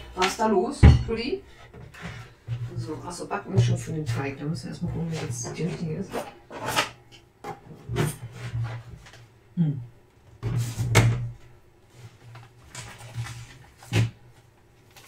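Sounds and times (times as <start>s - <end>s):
packets rustling: 12.2s - 14.0s, 14.8s - 15.0s.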